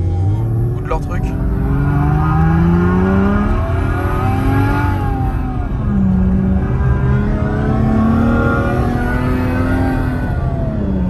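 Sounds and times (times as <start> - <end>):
simulated engine sound through speakers: 0.0 - 11.0.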